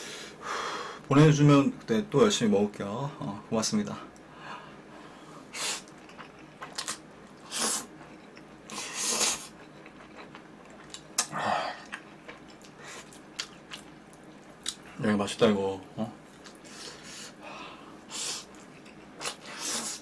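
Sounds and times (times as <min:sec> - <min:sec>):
man slurping noodles: 0:07.4 - 0:07.9, 0:08.7 - 0:09.5, 0:19.2 - 0:20.0.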